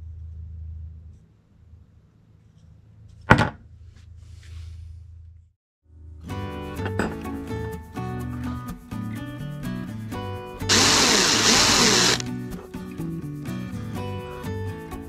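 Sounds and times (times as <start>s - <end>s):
background music: 5.9s - 15.0s.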